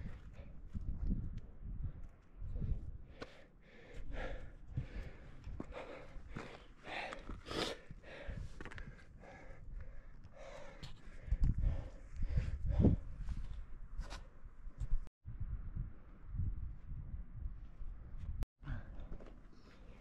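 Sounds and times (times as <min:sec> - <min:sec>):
person gasping for breath: 0:03.1 - 0:13.1, 0:18.6 - 0:19.3.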